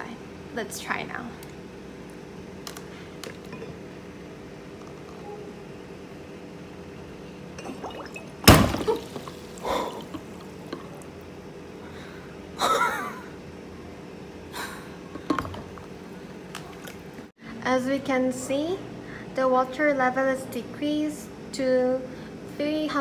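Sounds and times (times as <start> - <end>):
water splashing: 7.6 - 10.6
gas bubbling into beaker: 7.6 - 11.1.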